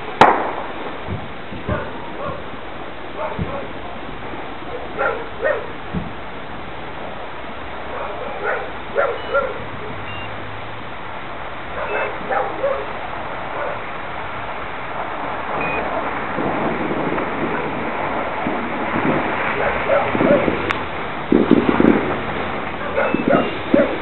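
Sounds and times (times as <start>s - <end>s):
steady background noise: 0.0s - 24.0s
dogs barking: 1.6s - 2.5s, 3.1s - 3.8s, 4.7s - 5.8s, 7.9s - 10.0s, 11.7s - 13.9s, 19.5s - 20.6s, 22.8s - 24.0s.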